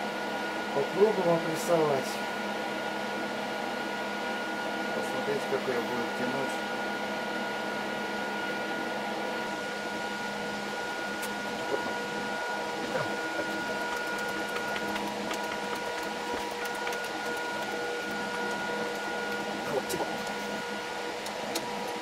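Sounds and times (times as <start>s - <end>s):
motor humming: 9.6s - 22.0s.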